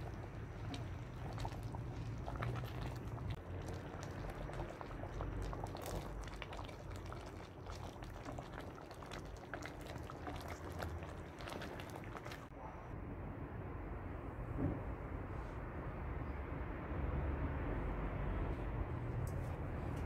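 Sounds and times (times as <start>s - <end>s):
stew bubbling in a pot: 0.0s - 12.6s.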